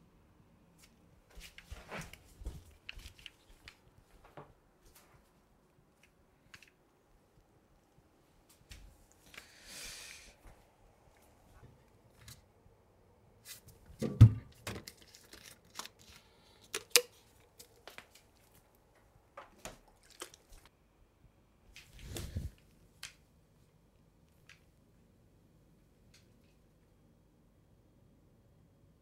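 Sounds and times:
items clicking and knocking: 13.9s - 17.8s
packaging rustling: 14.7s - 18.4s.

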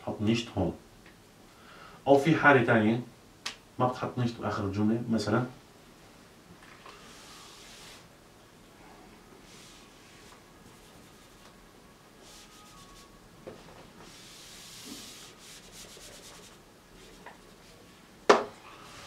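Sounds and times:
eraser wiping a whiteboard: 7.0s - 8.1s, 9.4s - 11.6s, 12.2s - 13.2s, 13.9s - 17.9s.

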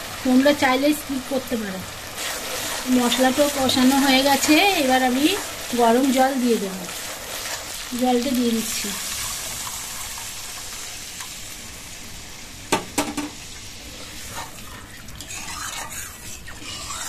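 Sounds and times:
water sizzling in hot oil: 0.0s - 17.0s
metal spatula knocking on pan: 12.7s - 13.4s
spatula scraping pan: 14.2s - 17.0s.

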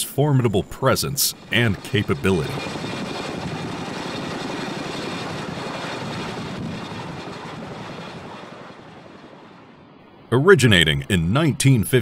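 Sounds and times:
helicopter rotor and engine noise: 0.0s - 12.0s.

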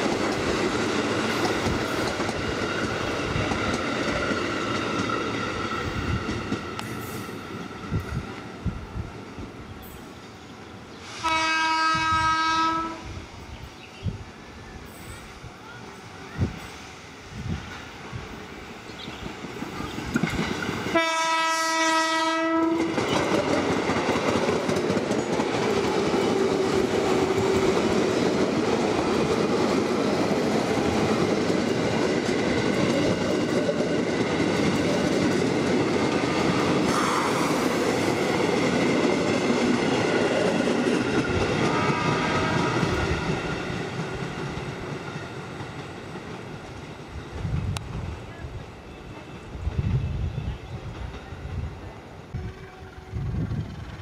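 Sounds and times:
train running past on tracks: 0.0s - 54.0s
train horn blast: 11.2s - 13.1s, 20.9s - 23.0s, 41.6s - 43.0s, 52.3s - 53.4s.

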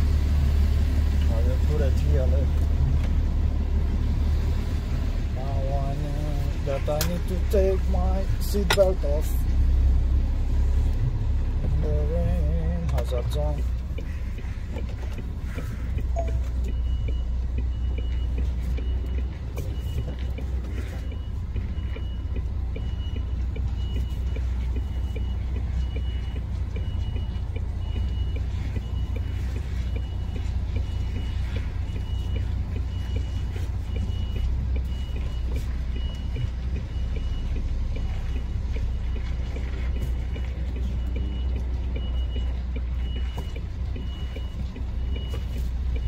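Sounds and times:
diesel engine running low: 0.0s - 46.0s
reversing alarm beeping: 15.5s - 46.0s.

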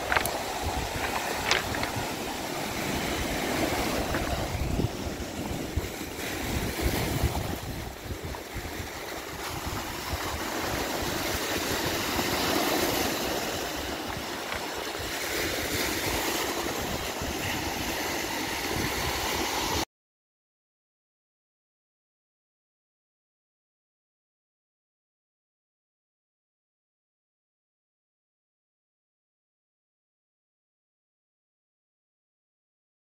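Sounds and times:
waves washing over pebbles: 0.0s - 19.8s
wind buffeting microphone: 0.0s - 19.8s.

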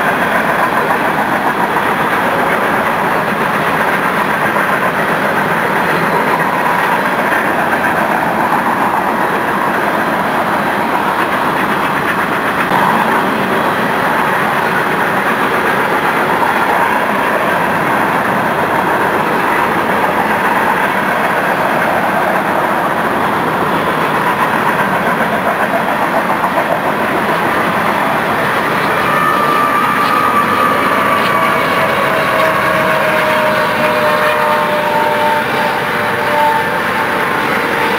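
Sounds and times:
train cars rolling on rails: 0.0s - 37.9s.

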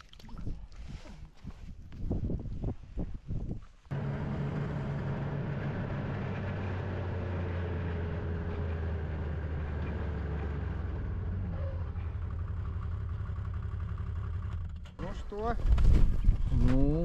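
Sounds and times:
snowmobile engine running: 3.9s - 14.8s.

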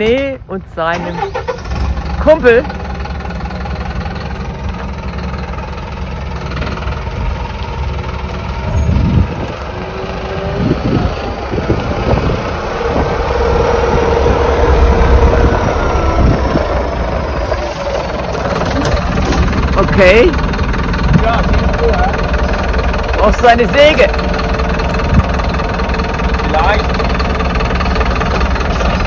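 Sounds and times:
diesel truck engine at low revs: 0.0s - 29.0s
tyres rolling on gravel: 16.6s - 29.0s.

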